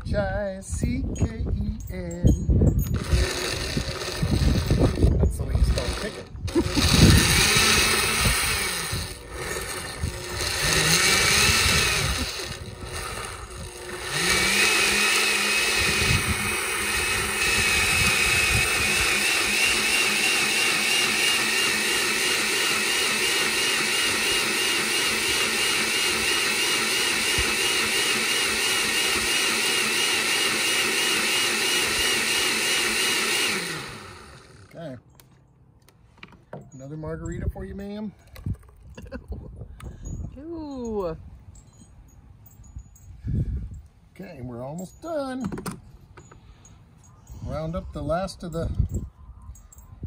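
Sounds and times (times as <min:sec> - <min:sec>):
electric blender running: 0:03.0 - 0:34.8.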